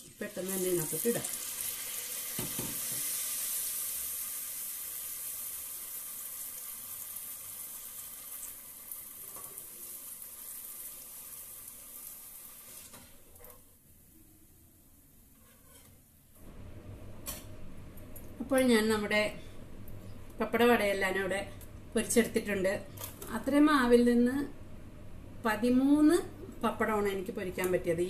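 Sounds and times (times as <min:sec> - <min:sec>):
deep-frying sizzle in oil: 0:00.0 - 0:13.1.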